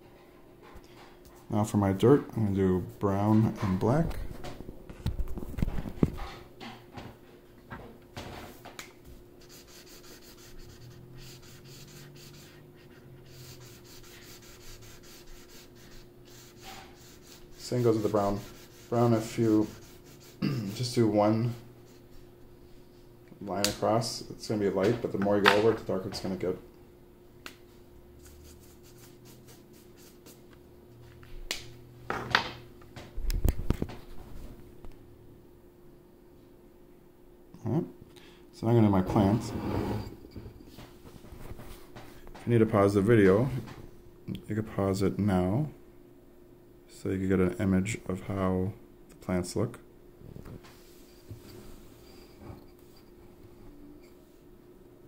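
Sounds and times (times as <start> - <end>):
marker scribbling on paper: 9.4 - 21.0, 28.2 - 30.4.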